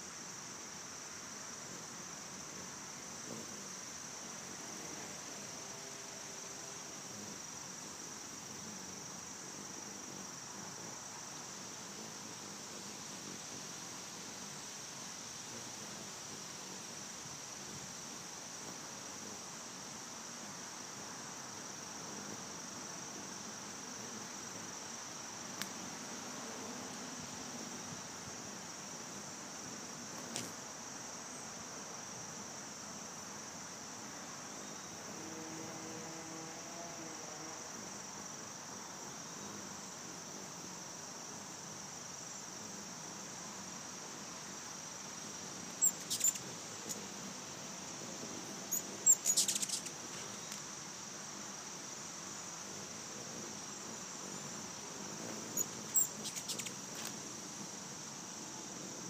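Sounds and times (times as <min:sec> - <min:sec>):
high insect trill: 0:00.0 - 0:59.0
hummingbirds chirping: 0:01.4 - 0:05.8, 0:06.4 - 0:14.8, 0:15.6 - 0:20.6, 0:45.2 - 0:51.3, 0:52.3 - 0:57.8.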